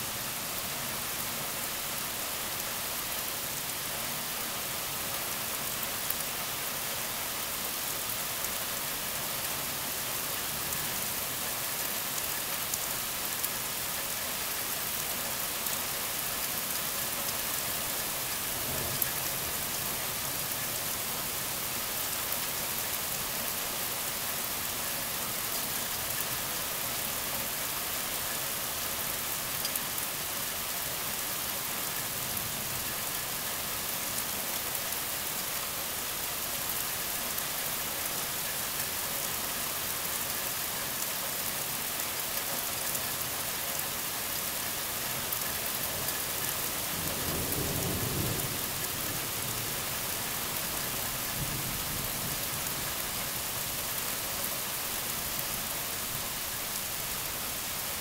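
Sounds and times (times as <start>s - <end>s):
heavy rain pouring: 0.0s - 58.0s
low rumble of thunder: 18.5s - 20.0s, 47.0s - 49.9s.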